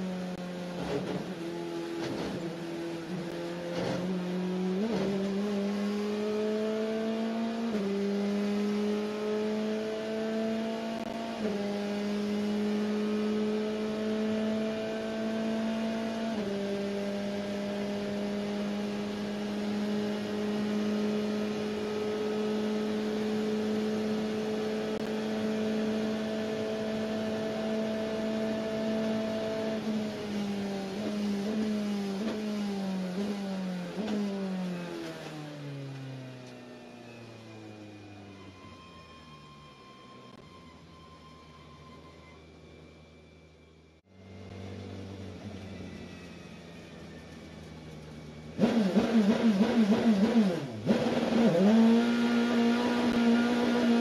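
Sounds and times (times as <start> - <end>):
race car engine revving through upshifts: 0.0 - 36.0, 48.5 - 54.0.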